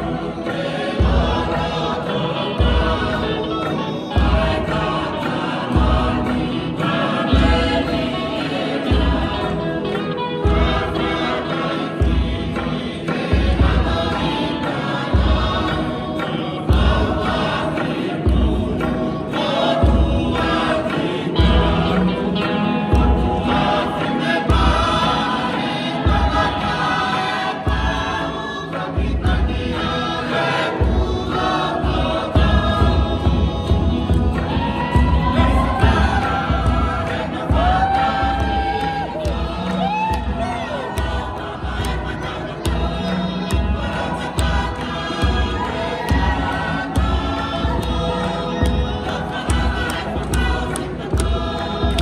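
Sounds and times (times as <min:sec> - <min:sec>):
group singing in harmony: 0:00.0 - 0:52.0
deep drum beat: 0:30.8 - 0:52.0.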